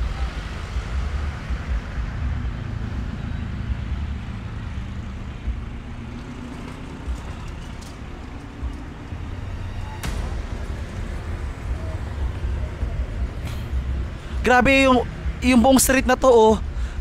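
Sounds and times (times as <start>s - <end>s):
urban street noise rumble: 0.0s - 17.0s.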